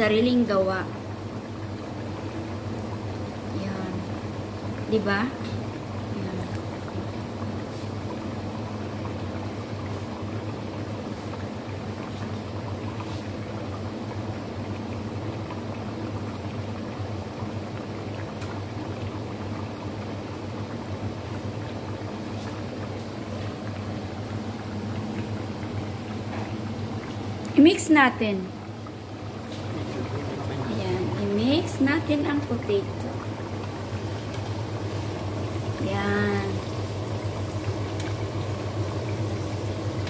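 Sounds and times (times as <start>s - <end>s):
fries sizzling in hot oil: 0.0s - 40.0s.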